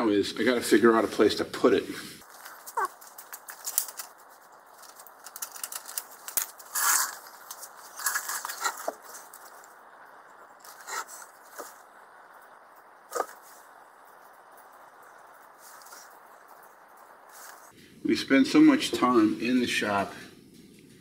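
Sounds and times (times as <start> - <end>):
rustling: 1.9 - 18.0
metal drill bits clicking: 2.3 - 9.7.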